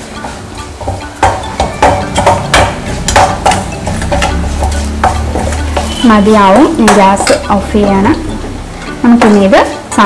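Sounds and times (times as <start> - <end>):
oil sizzling: 0.0 - 10.0
metal spoon scraping metal pan: 2.9 - 9.5.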